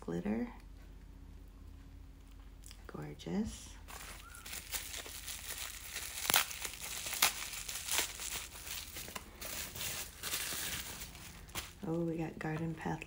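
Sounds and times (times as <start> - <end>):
packaging wrap crinkling: 3.8 - 12.1
sharp wrap crackles: 3.8 - 12.2.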